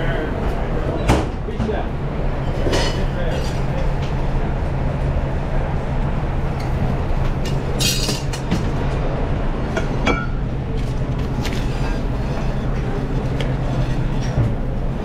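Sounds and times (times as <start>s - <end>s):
ventilation hum: 0.0s - 15.0s
clinks of metal and plates: 7.4s - 8.4s, 9.8s - 10.4s.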